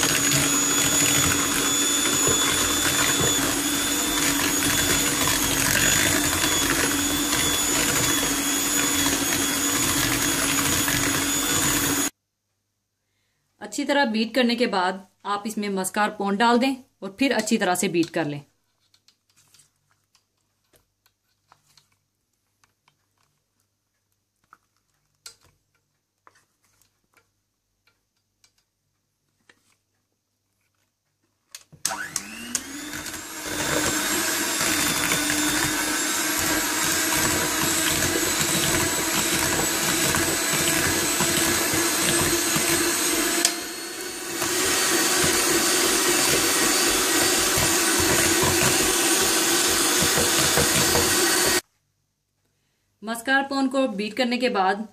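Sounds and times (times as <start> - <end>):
electric hand mixer whining: 0.0 - 12.2, 31.8 - 51.6.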